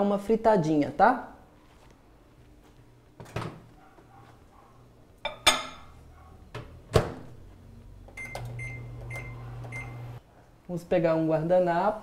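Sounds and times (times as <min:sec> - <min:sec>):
microwave oven humming: 0:06.5 - 0:10.2
microwave door shutting: 0:06.6 - 0:07.3
high keypad beeps: 0:08.2 - 0:10.0.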